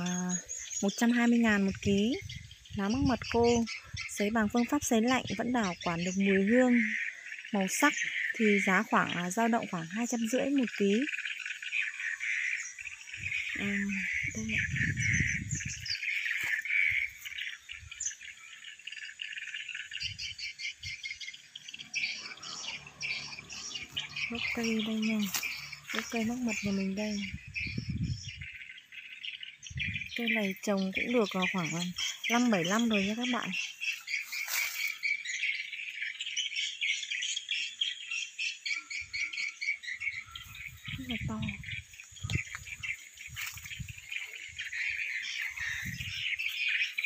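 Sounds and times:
bird chirps: 0.0s - 47.0s
insects chirping: 9.9s - 47.0s.

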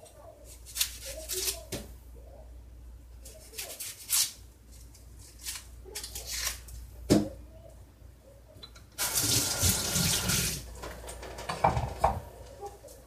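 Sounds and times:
onion skin crackling and tearing: 0.5s - 1.7s, 3.2s - 6.7s.

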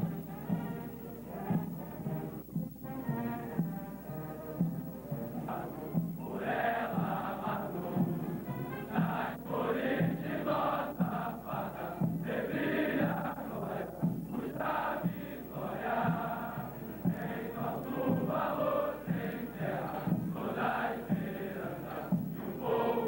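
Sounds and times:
men chanting in unison: 5.3s - 23.0s.

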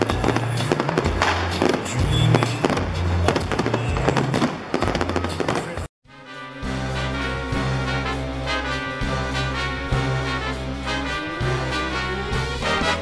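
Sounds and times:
fireworks bursting and crackling: 0.0s - 5.9s
music with heavy bass: 0.0s - 13.0s.

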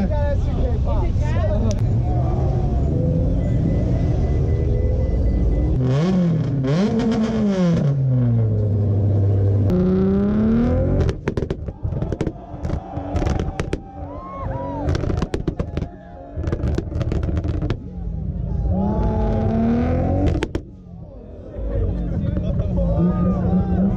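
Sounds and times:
car engines revving: 0.0s - 23.9s
exhaust pops and bangs: 11.0s - 14.0s, 14.8s - 17.8s, 20.2s - 20.8s.

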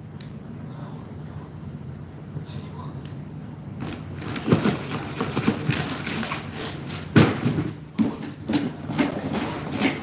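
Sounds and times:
plastic bag and cardboard rustling: 3.8s - 10.0s.

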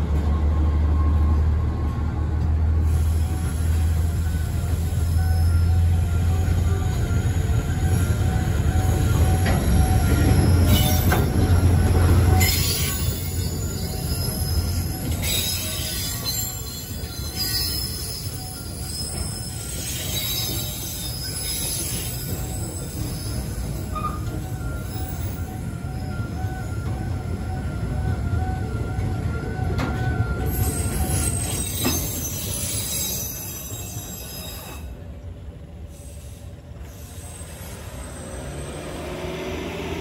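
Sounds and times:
train wheels rumbling over rail joints: 0.0s - 39.2s
wheel squeals: 3.1s - 27.0s, 29.7s - 35.0s, 36.0s - 39.2s.

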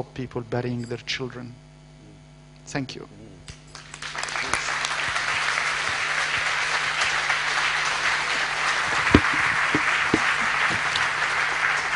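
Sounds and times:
audience applauding: 3.7s - 11.9s
sharp knock: 9.1s - 10.3s.

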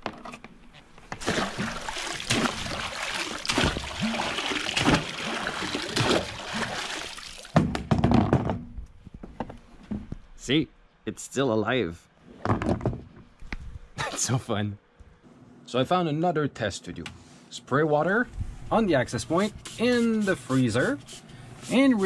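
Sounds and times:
pool water splashing: 1.1s - 7.6s.

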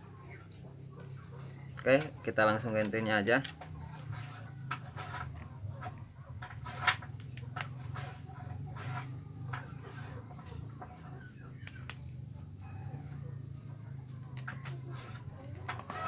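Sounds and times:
cricket chirping: 7.1s - 14.0s.

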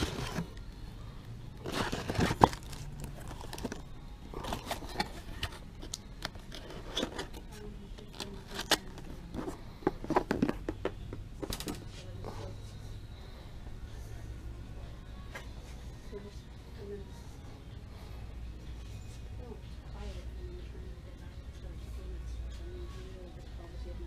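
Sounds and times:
crinkling and rustling: 0.0s - 0.6s, 1.6s - 10.8s.

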